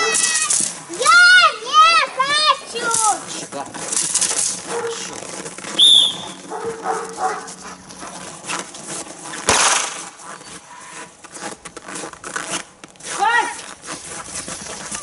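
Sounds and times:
dog yelp: 0:04.6 - 0:07.8.

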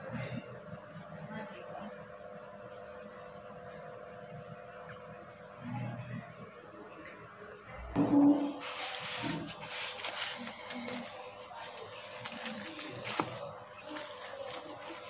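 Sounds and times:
plastic wrap crackling: 0:09.6 - 0:15.0.

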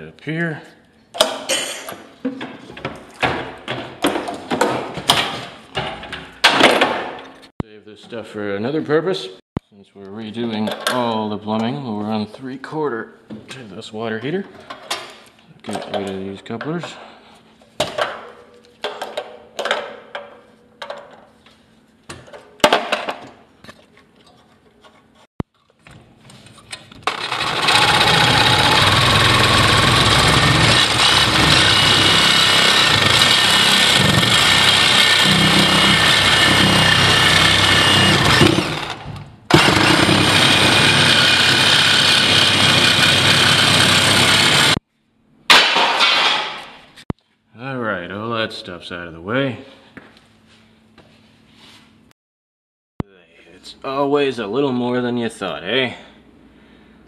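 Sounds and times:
power tool running: 0:27.0 - 0:44.8.

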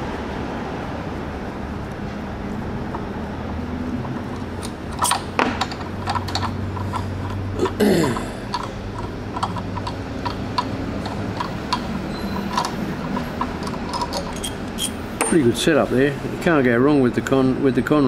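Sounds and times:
workshop hum: 0:00.0 - 0:18.0
small metal clicks and clinks: 0:04.0 - 0:15.4
short falling squeak: 0:12.1 - 0:12.5, 0:14.3 - 0:15.0.

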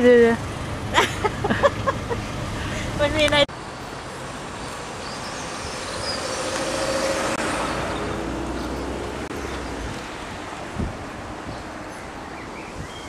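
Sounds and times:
vehicle driving past: 0:04.6 - 0:09.8.

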